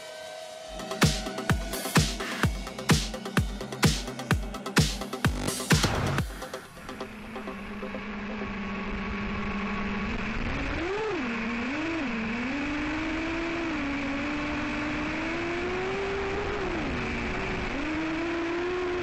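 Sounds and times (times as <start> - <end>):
propeller hiss: 0.0 - 7.8
drone motors whining: 0.0 - 19.0.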